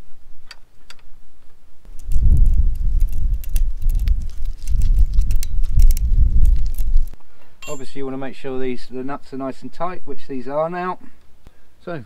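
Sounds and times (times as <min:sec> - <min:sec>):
wind buffeting microphone: 0:01.9 - 0:07.2.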